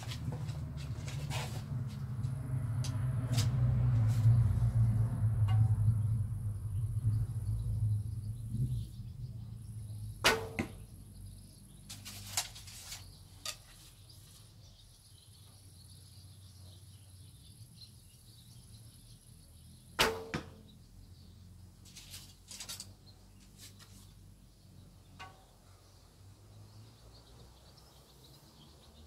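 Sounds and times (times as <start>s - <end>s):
bow string slap and twang: 5.4s - 5.8s, 10.2s - 10.9s, 20.0s - 20.6s.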